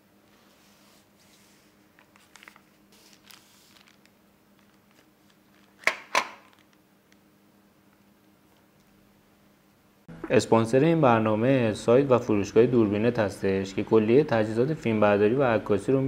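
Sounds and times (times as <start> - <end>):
faint rustles and handling noises: 0.2 - 7.2.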